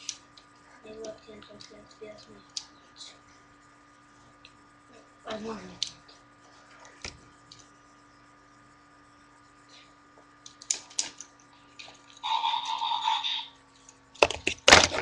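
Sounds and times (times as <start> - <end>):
toys clattering together: 14.2 - 15.0.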